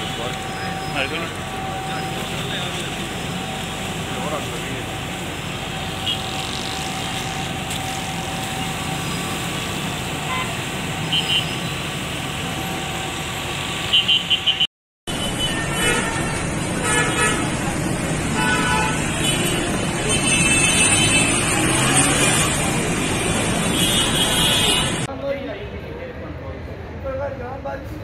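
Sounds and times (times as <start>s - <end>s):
city traffic noise: 0.0s - 28.0s
car horns tooting: 10.2s - 11.8s, 13.9s - 17.5s, 18.3s - 25.1s.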